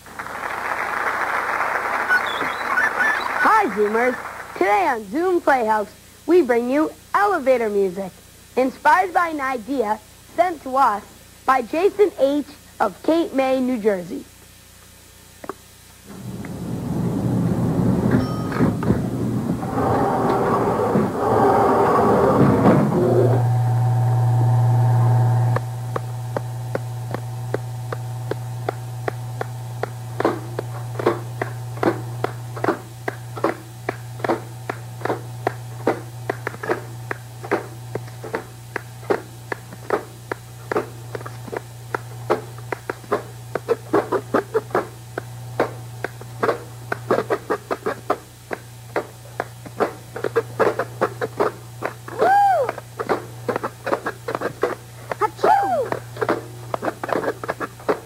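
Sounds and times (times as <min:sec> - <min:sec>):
low hum: 0:14.3 - 0:58.0
faint steady tones: 0:21.9 - 0:58.0.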